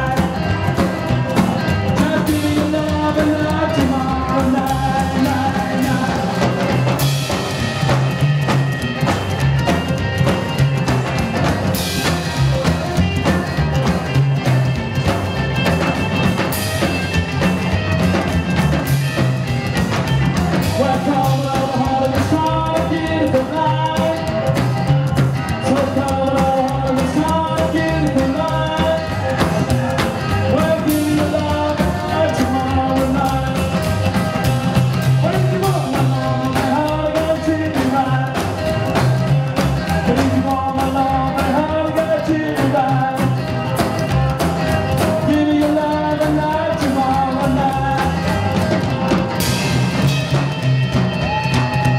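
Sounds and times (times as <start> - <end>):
man singing: 0.0 - 8.5, 20.0 - 49.7
live rockabilly band playing: 0.0 - 51.9.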